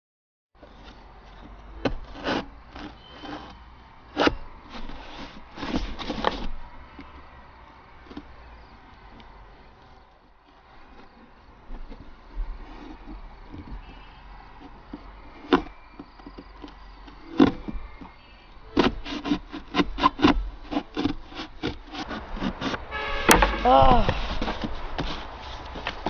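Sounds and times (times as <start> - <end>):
knife sawing through cardboard: 1.8 - 6.7, 18.7 - 26.0.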